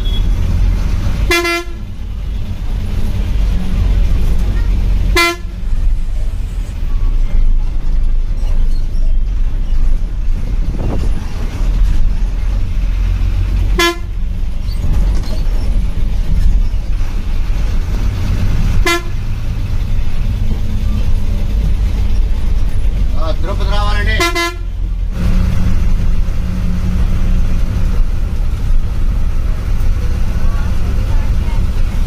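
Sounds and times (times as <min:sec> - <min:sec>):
bus engine rumbling: 0:00.0 - 0:32.0
horn toots: 0:01.2 - 0:01.9, 0:05.1 - 0:05.6, 0:13.7 - 0:14.2, 0:18.7 - 0:19.4, 0:24.1 - 0:24.8.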